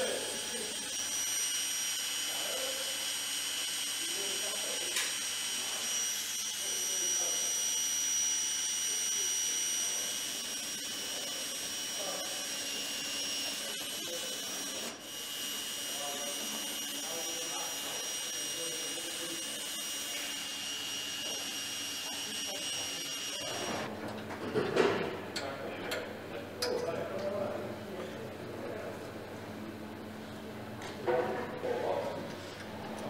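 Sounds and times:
high-pitched machine whine: 0.0 - 24.2.

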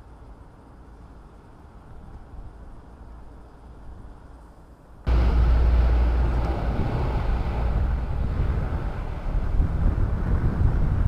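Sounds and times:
wind rumble on microphone: 0.0 - 11.0
turboprop aircraft taking off: 5.1 - 11.0.

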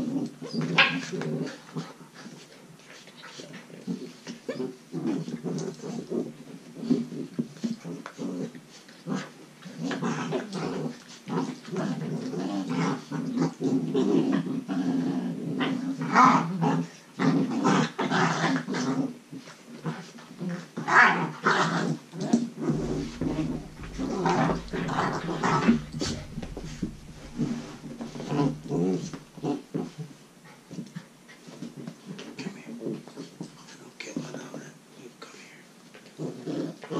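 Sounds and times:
puppies growling: 19.8 - 31.6.

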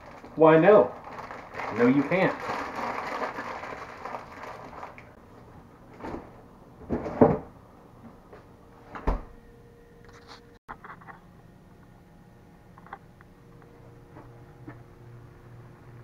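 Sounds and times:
refrigerator door opening and shutting: 6.0 - 7.5, 8.9 - 9.4.

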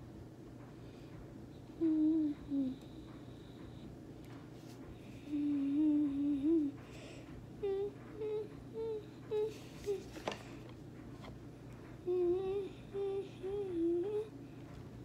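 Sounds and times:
child humming: 1.7 - 3.1, 5.2 - 6.8, 7.6 - 10.2, 12.0 - 14.4.

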